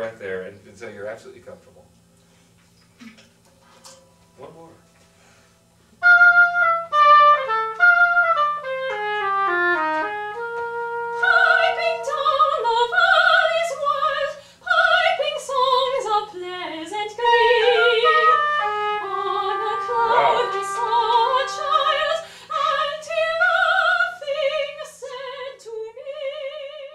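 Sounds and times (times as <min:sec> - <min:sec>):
oboe playing short notes: 0:06.0 - 0:14.3, 0:17.2 - 0:23.0
soprano singing with vibrato: 0:11.1 - 0:26.9.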